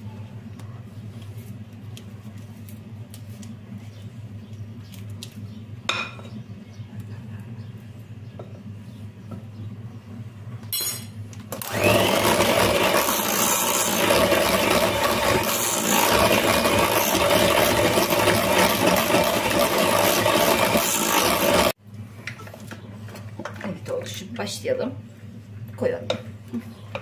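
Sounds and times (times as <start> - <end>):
electric hand mixer beating batter: 11.6 - 21.8.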